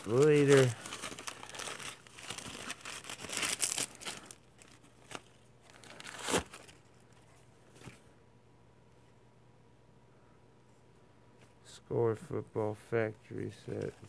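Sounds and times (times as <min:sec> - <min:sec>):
packaging rustling: 0:00.0 - 0:07.2.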